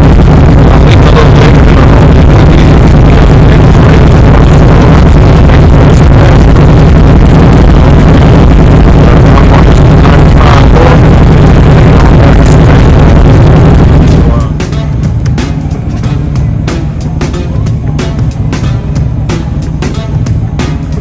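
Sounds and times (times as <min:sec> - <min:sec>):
motorcycle engine idling: 0:14.0 - 0:21.0.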